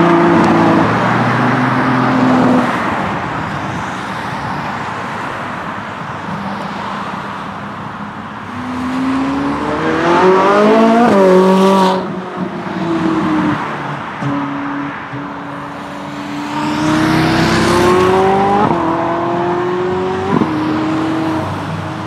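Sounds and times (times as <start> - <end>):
sports car engine accelerating: 8.6 - 12.1, 15.5 - 21.5
car engine driving away: 15.7 - 21.5.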